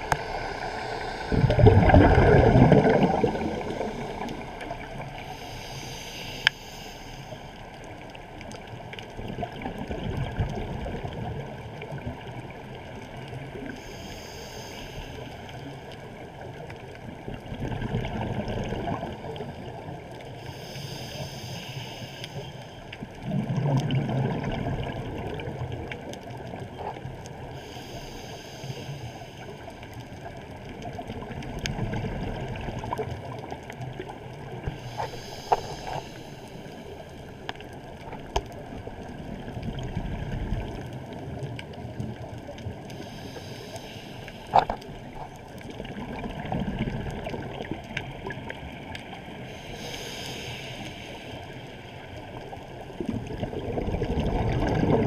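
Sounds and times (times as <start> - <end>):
regulator inhale hiss: 0.0 - 2.2, 2.9 - 8.0, 13.6 - 16.1, 20.2 - 23.0, 27.4 - 30.0, 34.4 - 37.6, 42.7 - 45.1, 49.2 - 53.0
exhaled bubbles rumbling: 0.0 - 5.5, 7.8 - 13.8, 15.8 - 20.3, 23.0 - 27.4, 29.8 - 43.2, 44.4 - 49.9, 51.2 - 55.0
muffled water wash: 0.0 - 55.0.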